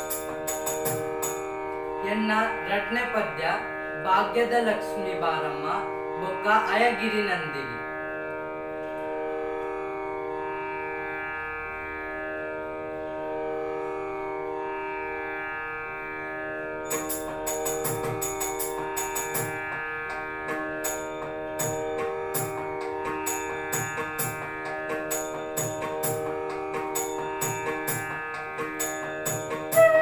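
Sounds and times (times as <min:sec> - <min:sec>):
drum strokes: 0:00.0 - 0:01.4, 0:16.9 - 0:30.0
sustained melody over drone: 0:00.0 - 0:30.0
low drum bending in pitch: 0:16.9 - 0:30.0.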